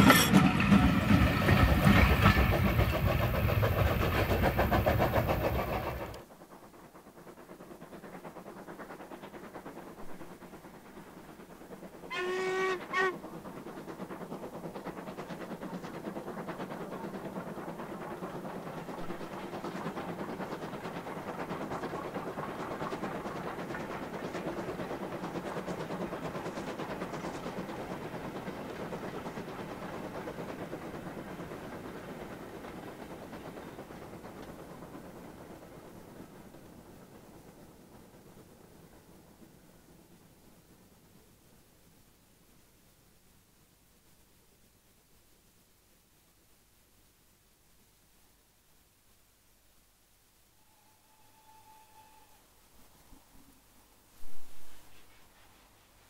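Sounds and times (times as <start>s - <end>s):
steam engine exhaust beats: 0.0s - 42.9s
steam locomotive whistle: 12.1s - 13.2s, 50.5s - 53.1s.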